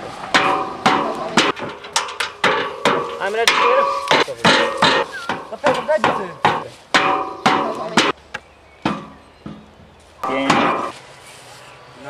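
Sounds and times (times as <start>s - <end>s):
hammer strikes with ringing: 2.4s - 8.2s, 8.8s - 10.9s.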